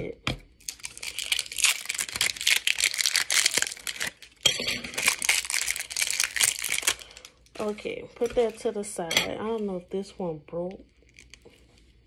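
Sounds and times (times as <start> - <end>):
plastic packaging crinkling: 0.6 - 8.7, 10.9 - 12.0.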